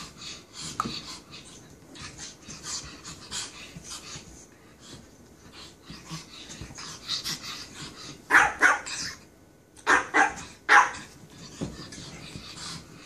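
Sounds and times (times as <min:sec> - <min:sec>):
dog barking: 0:08.3 - 0:08.9, 0:09.8 - 0:11.0.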